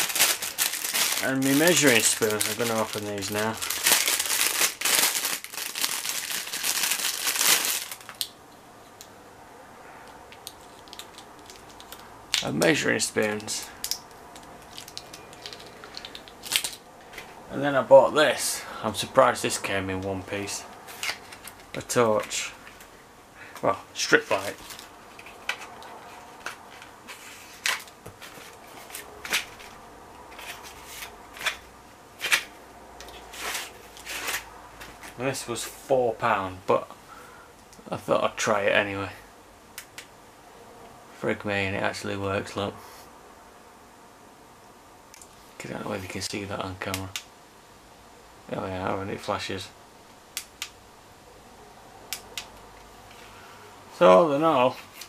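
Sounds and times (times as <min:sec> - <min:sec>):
plastic bag crinkling: 0:00.0 - 0:08.3, 0:10.4 - 0:16.9.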